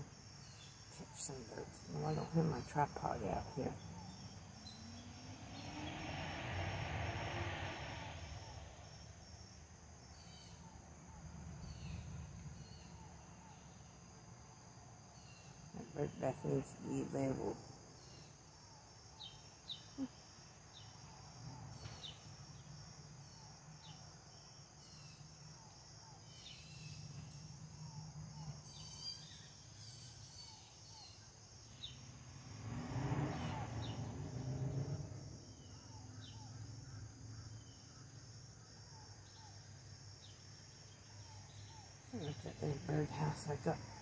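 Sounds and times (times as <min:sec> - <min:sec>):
insects trilling: 0:00.0 - 0:44.0
rushing noise: 0:05.3 - 0:09.1
short insect chirps: 0:17.8 - 0:42.1.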